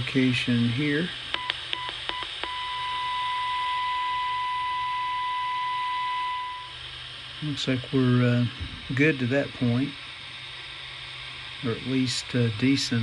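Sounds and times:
high-pitched test tone: 0:02.4 - 0:06.8
hiss: 0:06.8 - 0:13.0.

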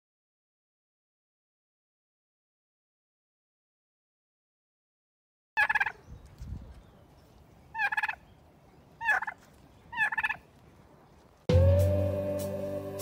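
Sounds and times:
turkey gobbling: 0:05.6 - 0:06.0, 0:07.7 - 0:08.2, 0:09.0 - 0:10.4.

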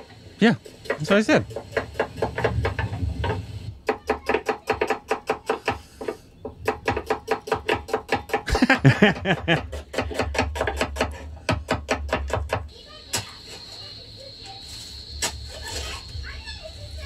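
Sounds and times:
person laughing: 0:08.5 - 0:09.8.

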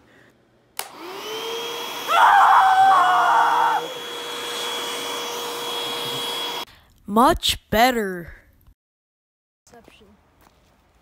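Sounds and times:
vacuum cleaner motor whine: 0:00.8 - 0:06.7.

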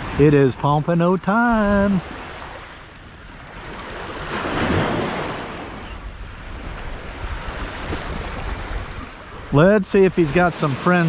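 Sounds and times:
wind rumbling on microphone: 0:01.5 - 0:10.5
surf breaking on beach: 0:03.4 - 0:11.0.

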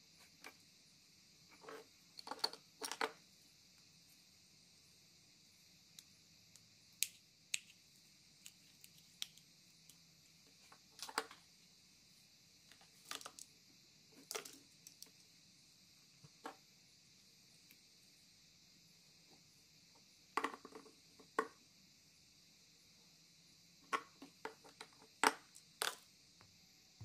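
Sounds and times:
small plastic clicks: 0:08.4 - 0:10.0, 0:12.7 - 0:13.5.

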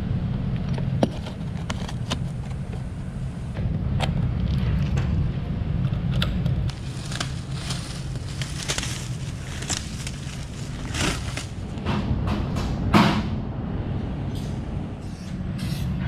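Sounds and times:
steady low hum: 0:00.0 - 0:16.0
plastic wrap crinkling: 0:06.7 - 0:11.7.

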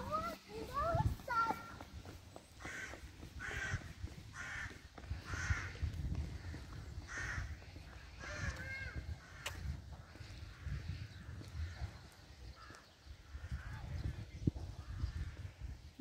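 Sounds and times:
crows cawing: 0:02.6 - 0:13.8.

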